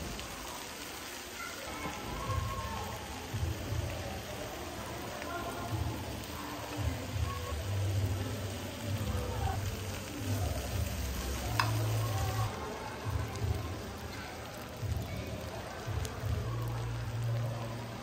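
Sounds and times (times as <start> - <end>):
meat sizzling on a grill pan: 0.0 - 18.0
metal tongs stirring: 11.1 - 12.4.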